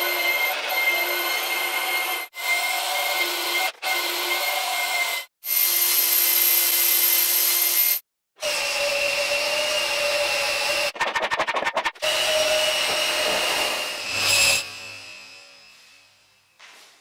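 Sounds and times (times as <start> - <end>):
gearing whine: 12.4 - 16.6.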